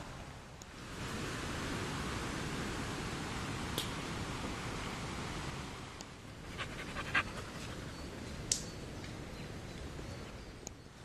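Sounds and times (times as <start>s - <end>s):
dog panting: 6.5s - 8.0s.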